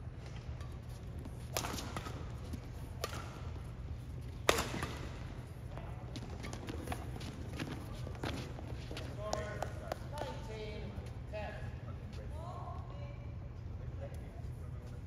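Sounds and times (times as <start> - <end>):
steady low hum: 0.0 - 15.0
rackets hitting shuttlecock: 0.2 - 3.7, 4.3 - 5.4.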